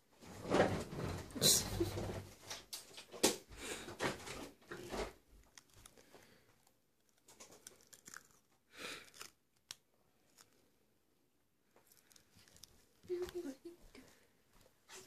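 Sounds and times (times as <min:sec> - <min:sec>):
plastic tape peeling and crinkling: 0:04.7 - 0:10.6, 0:11.8 - 0:13.6.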